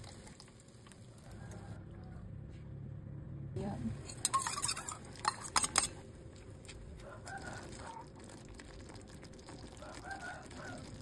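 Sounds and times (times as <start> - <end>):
metal spoon scraping steel bowl: 4.0 - 6.0
sauce simmering in a pan: 4.4 - 11.0.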